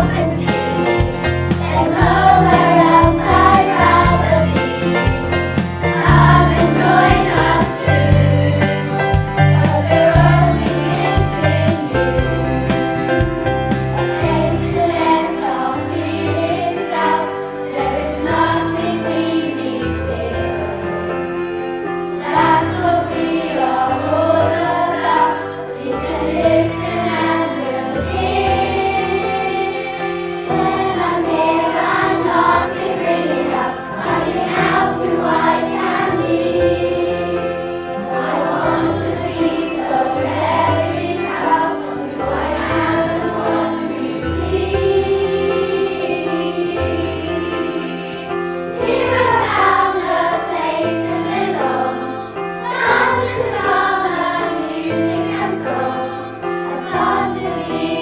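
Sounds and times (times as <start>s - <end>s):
children's choir singing: 0.0s - 58.0s
musical accompaniment with bass line: 0.0s - 58.0s.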